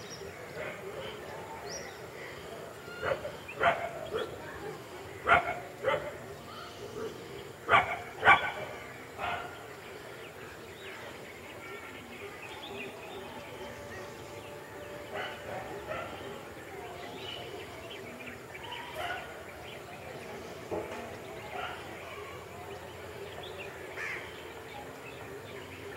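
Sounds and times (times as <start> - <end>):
dog barking: 3.0 - 4.4, 5.2 - 6.2, 7.7 - 9.6.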